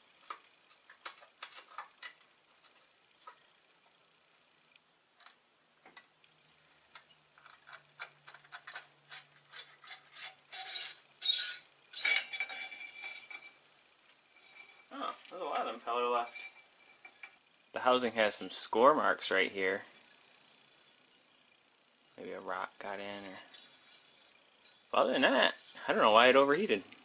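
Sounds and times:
metal housing scraping: 0:07.5 - 0:13.7, 0:14.3 - 0:18.9, 0:22.0 - 0:26.8.

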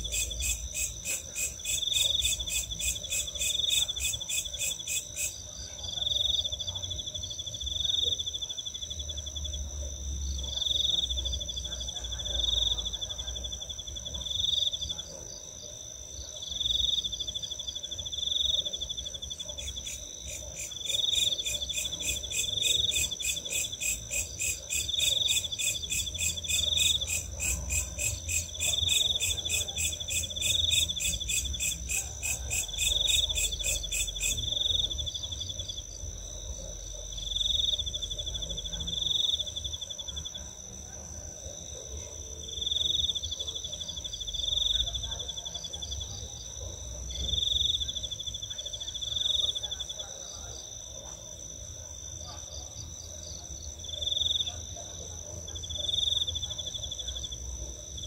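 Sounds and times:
insect steady high trill: 0:00.0 - 0:05.4.

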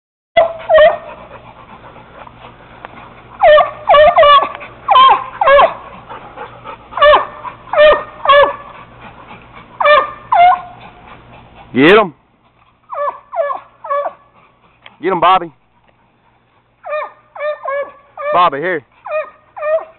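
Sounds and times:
dog barking high: 0:00.4 - 0:01.2, 0:03.4 - 0:05.9, 0:07.0 - 0:08.7, 0:09.8 - 0:10.8, 0:12.9 - 0:14.2, 0:16.8 - 0:19.9.

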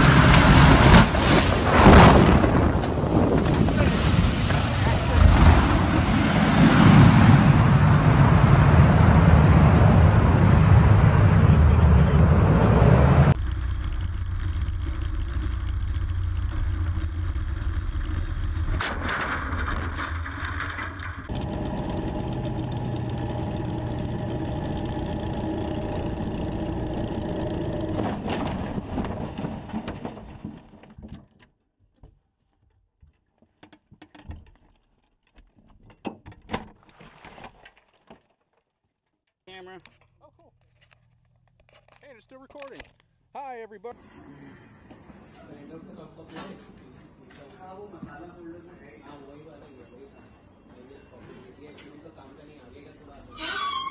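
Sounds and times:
knocks and rattles: 0:13.4 - 0:38.7
aircraft engine and propeller droning: 0:21.3 - 0:28.4.

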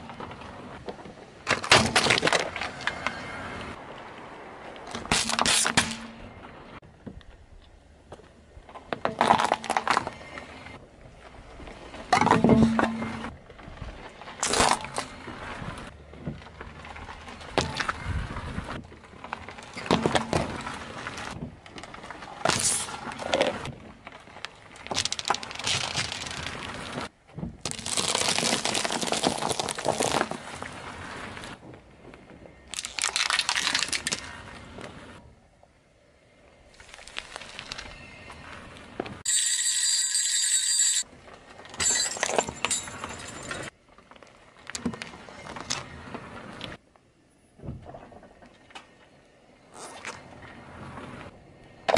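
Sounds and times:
tyre crushing small objects: 0:08.9 - 0:10.3, 0:14.4 - 0:15.2, 0:19.2 - 0:30.8, 0:32.6 - 0:34.5.

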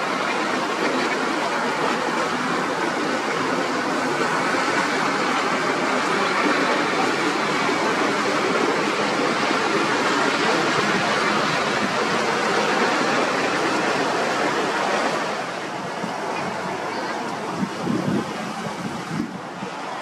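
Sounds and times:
loud steady rushing noise: 0:00.0 - 0:20.0.

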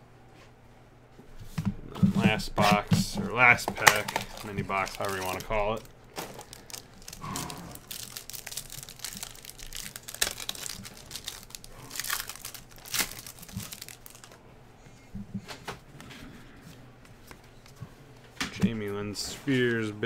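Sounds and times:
plastic wrapper crinkling and tearing: 0:02.7 - 0:14.4.

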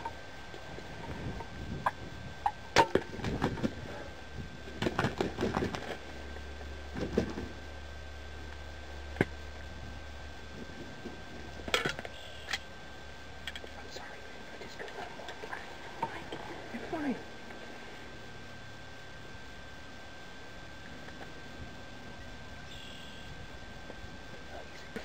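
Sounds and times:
turkey wings flapping: 0:04.7 - 0:06.0.

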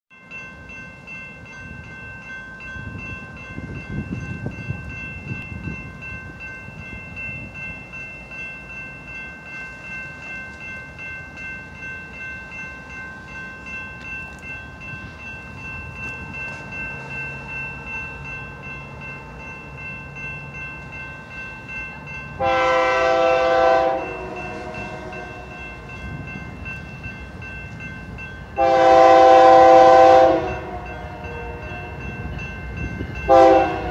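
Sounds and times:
crossing bell ringing: 0:00.1 - 0:33.9
train air horn blasts: 0:22.4 - 0:25.5, 0:28.6 - 0:32.0, 0:33.3 - 0:33.9.

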